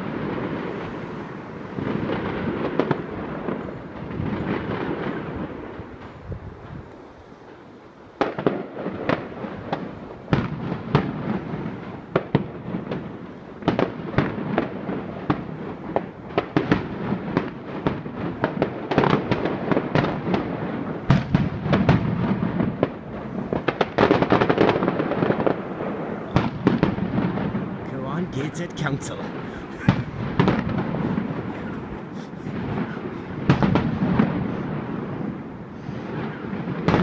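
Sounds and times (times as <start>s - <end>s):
fireworks bangs: 0.0s - 6.8s, 8.2s - 37.0s
fireworks crackle: 0.0s - 37.0s.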